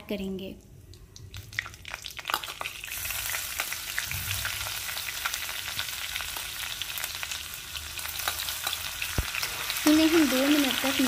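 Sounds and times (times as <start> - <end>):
spices sizzling in hot oil: 1.2 - 11.0
small pops and crackles: 9.1 - 9.5.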